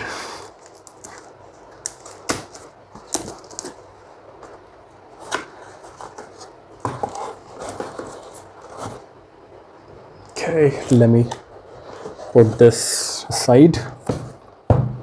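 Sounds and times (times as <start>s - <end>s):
packaging rustling and scraping: 0.5s - 9.3s, 10.9s - 13.2s.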